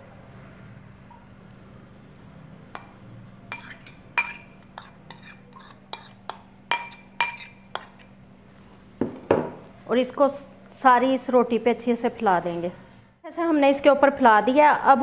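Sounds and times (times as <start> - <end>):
metal spoon clinking on ceramic bowl: 2.8 - 8.2.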